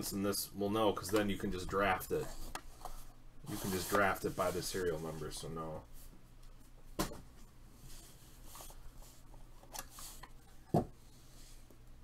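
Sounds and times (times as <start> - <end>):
plastic card holders rubbing and sliding: 2.0 - 5.0.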